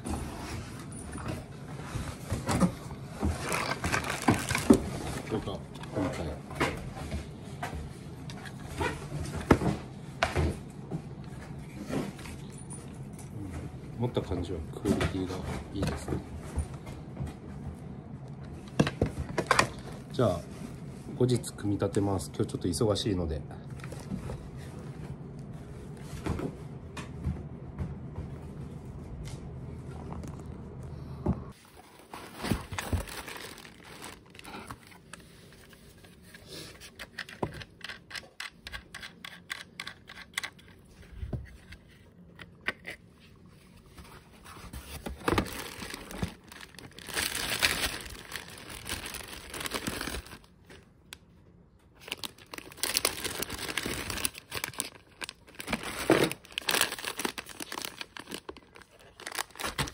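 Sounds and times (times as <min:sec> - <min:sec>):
plastic packaging crinkling: 0:03.3 - 0:05.6, 0:31.6 - 0:36.2, 0:44.7 - 0:50.8, 0:52.0 - 0:59.9.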